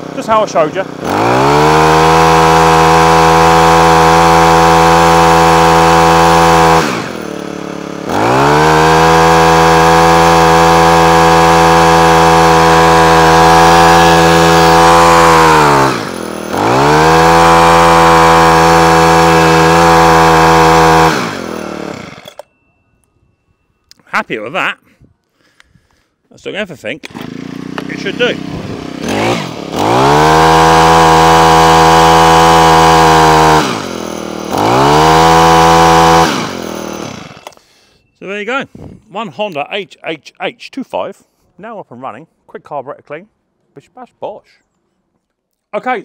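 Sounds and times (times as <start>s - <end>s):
hedge trimmer engine revving: 0.0s - 22.5s, 27.0s - 39.6s.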